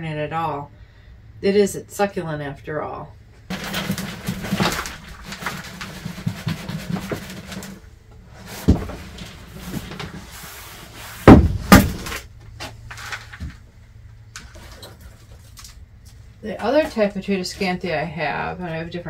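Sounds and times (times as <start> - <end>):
plastic tub knocks and thumps: 3.5 - 7.8, 8.6 - 10.1, 11.3 - 12.1
compost sliding and rustling: 3.5 - 11.4.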